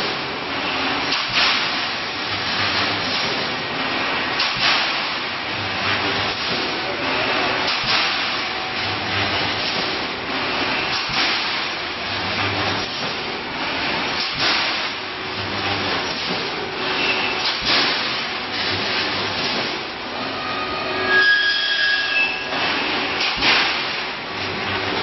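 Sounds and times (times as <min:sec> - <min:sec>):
loud mechanical clatter: 0:00.0 - 0:20.0, 0:22.5 - 0:25.0.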